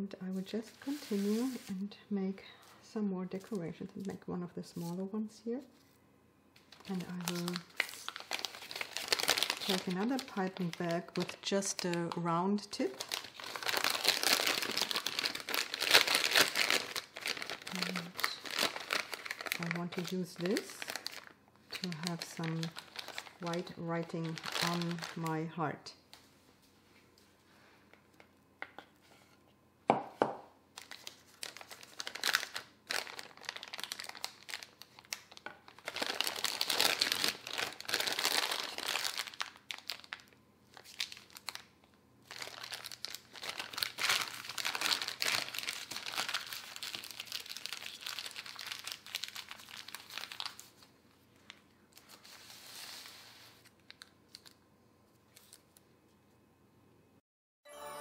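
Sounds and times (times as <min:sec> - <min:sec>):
plastic piping bag crinkling: 0:00.3 - 0:01.8, 0:06.6 - 0:26.2, 0:30.7 - 0:54.6.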